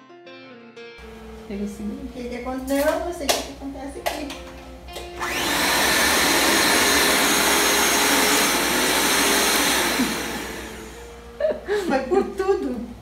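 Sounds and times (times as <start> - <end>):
electric mixer motor whirring: 5.2 - 11.3.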